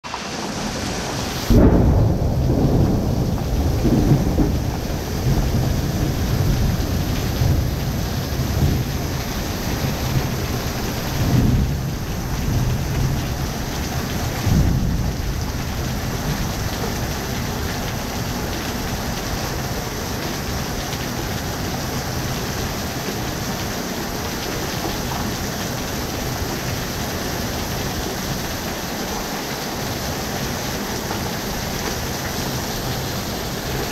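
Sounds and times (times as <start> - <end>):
heavy rain on concrete: 0.0 - 33.9
thunder: 1.4 - 10.5, 11.1 - 17.0.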